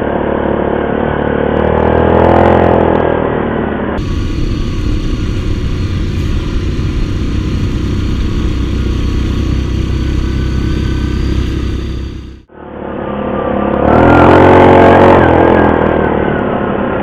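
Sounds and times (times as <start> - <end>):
atv engine running: 4.0 - 12.5.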